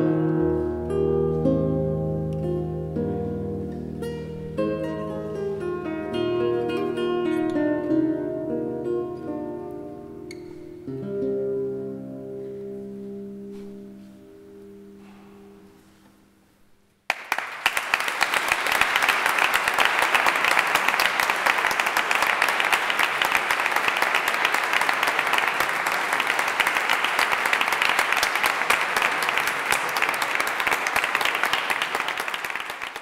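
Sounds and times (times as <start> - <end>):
guitar notes ringing: 0.0 - 16.4
audience applause: 17.1 - 33.0.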